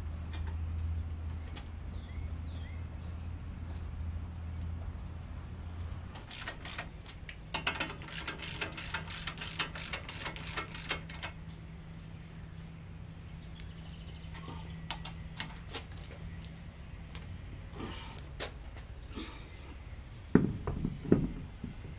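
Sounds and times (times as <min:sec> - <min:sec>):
hand ratchet clicking: 0:06.2 - 0:11.4.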